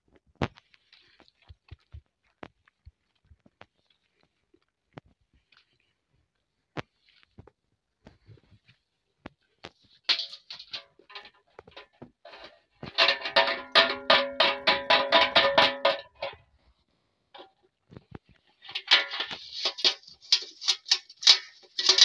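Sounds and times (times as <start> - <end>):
dog eating from metal bowl: 12.4 - 16.4, 18.3 - 22.0.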